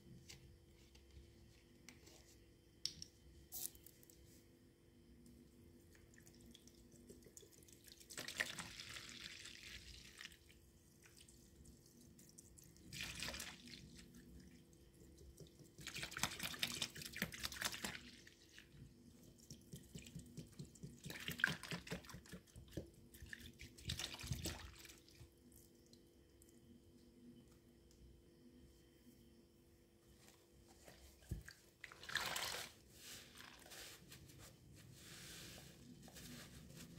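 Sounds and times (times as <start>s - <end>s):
liquid pouring and splashing: 31.4s - 33.9s.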